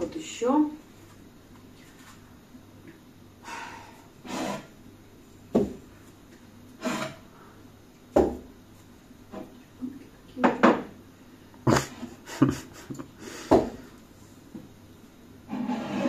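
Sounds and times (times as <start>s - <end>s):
soft brushing sounds: 0.9s - 2.3s
kitchenware knocking on countertop: 10.4s - 10.9s.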